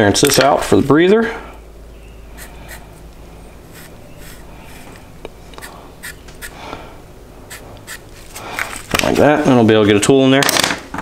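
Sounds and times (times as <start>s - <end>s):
low steady hum: 0.0s - 10.1s
marker scratching on steel: 2.4s - 3.0s, 3.6s - 5.0s, 5.6s - 6.6s, 7.5s - 8.4s.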